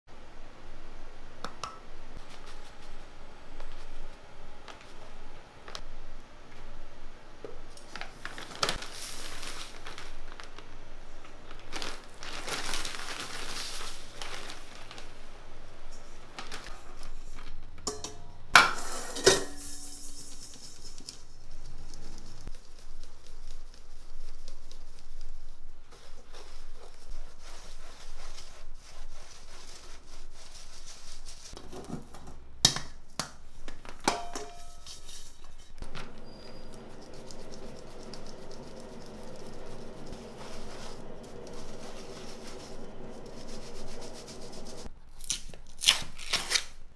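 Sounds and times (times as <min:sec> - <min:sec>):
flour bags crinkling: 0:07.8 - 0:15.3, 0:16.1 - 0:17.8
sieve shaking: 0:36.6 - 0:44.9.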